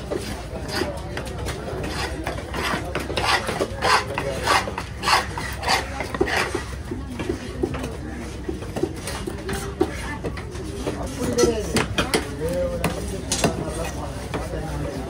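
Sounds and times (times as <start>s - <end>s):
knife scraping fish flesh: 0.2s - 6.8s.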